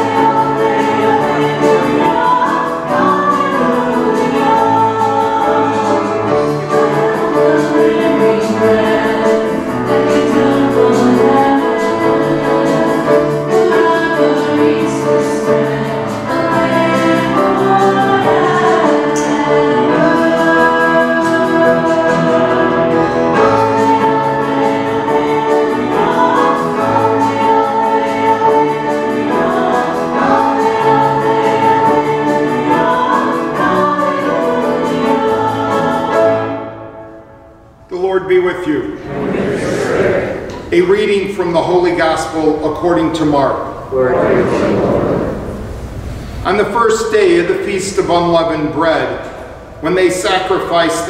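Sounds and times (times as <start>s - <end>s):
liturgical singing: 0.0s - 37.3s, 37.9s - 45.7s
organ bass notes: 38.2s - 46.6s.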